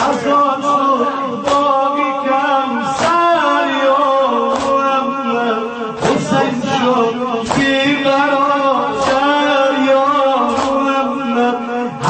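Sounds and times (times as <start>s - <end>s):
man singing a lament: 0.0s - 12.0s
regular beat: 5.9s - 11.1s.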